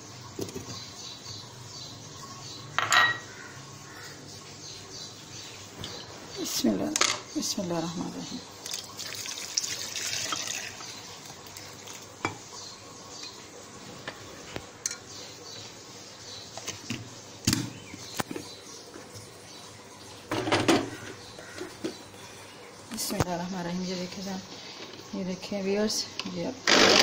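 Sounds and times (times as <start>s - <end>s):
glass jar clinks and knocks: 2.8s - 3.3s
milk pouring into a glass jar: 8.7s - 10.8s.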